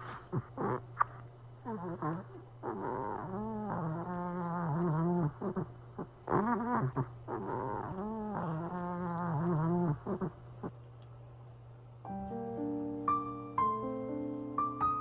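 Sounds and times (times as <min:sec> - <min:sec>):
dog whining and groaning: 0:00.0 - 0:10.8.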